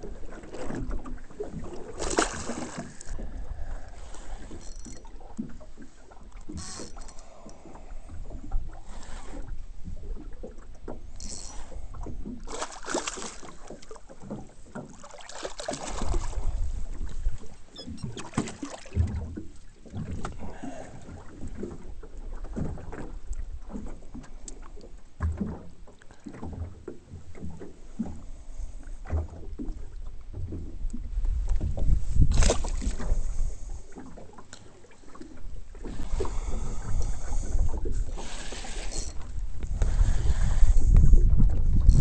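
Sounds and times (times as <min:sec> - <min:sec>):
water splashing against boat: 0:00.0 - 0:42.0
low knocks and thumps: 0:16.0 - 0:20.4, 0:29.0 - 0:33.2.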